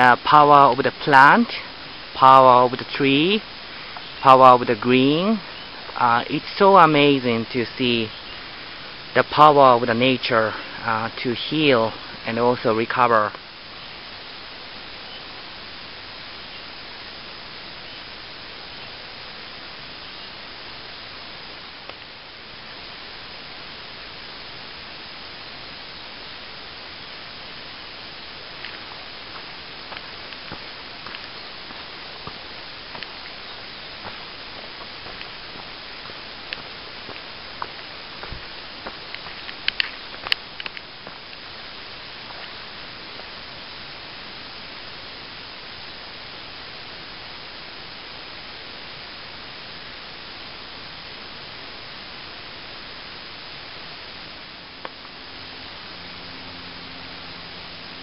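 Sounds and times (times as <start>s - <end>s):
steady hiss: 0.0s - 58.0s
footsteps on dirt trail: 28.3s - 43.4s.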